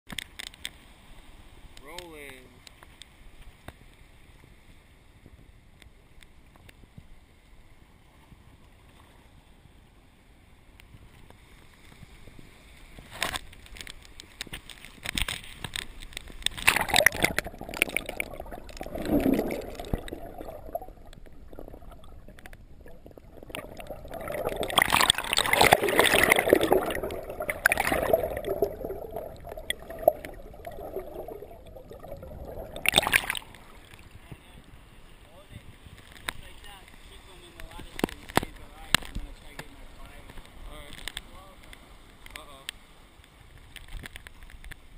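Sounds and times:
muffled underwater surf: 0.1s - 44.9s
bubbles: 16.4s - 34.2s.

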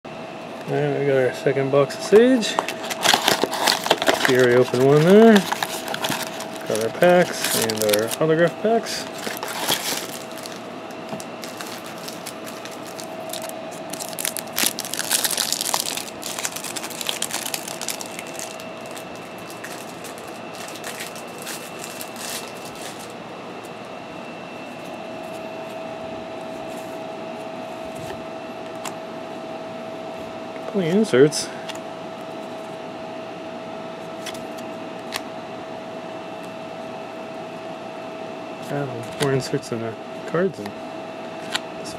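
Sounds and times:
steady hum: 0.1s - 41.9s
cards clicking: 2.1s - 8.2s
wrappers crinkling and tearing: 2.4s - 23.2s.

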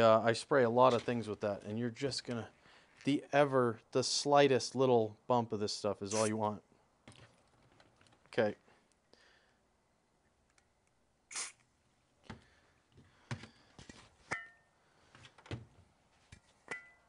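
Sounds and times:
aerosol can spray: 11.3s - 11.6s.

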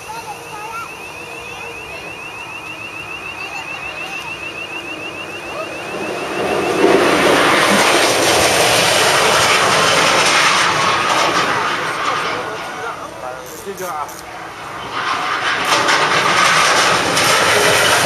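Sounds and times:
loud rushing noise: 4.2s - 13.3s, 14.3s - 18.0s.

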